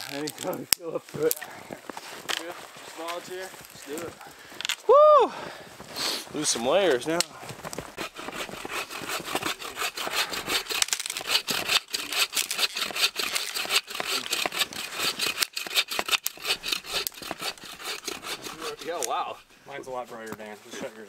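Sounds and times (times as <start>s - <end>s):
hand saw cutting through log: 7.7s - 19.5s.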